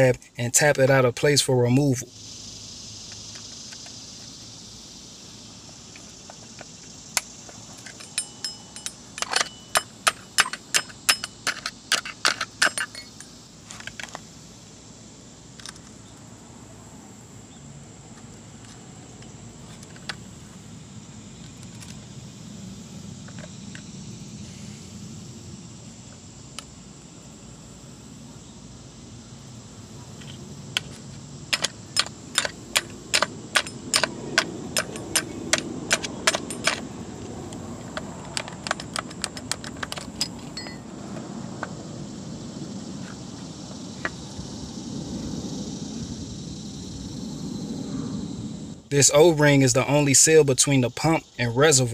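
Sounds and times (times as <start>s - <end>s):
metal tool tapping on metal: 7.8s - 13.2s, 31.5s - 36.8s, 38.0s - 40.8s.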